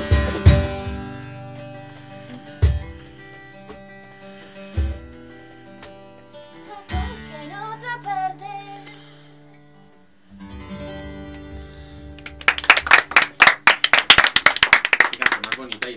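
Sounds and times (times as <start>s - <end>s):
acoustic guitar: 0.0s - 15.9s
woman singing: 6.6s - 9.1s
hand clapping: 12.1s - 15.9s.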